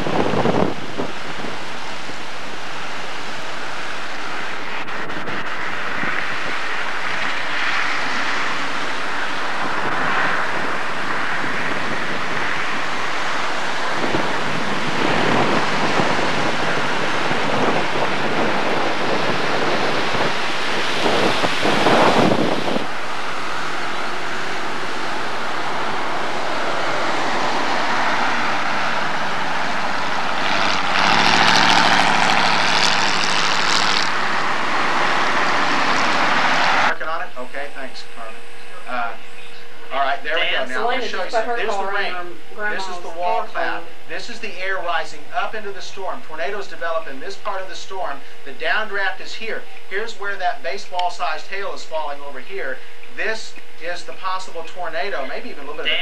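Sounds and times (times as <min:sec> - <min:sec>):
gusty wind buffeting microphone: 0:00.0 - 0:36.9
vehicle passing: 0:00.0 - 0:44.7.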